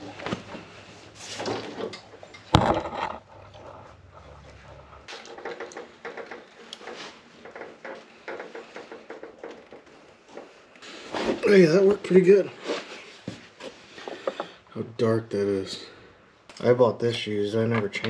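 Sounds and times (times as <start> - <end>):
lawn machine clunks and rattles: 1.3 - 10.6.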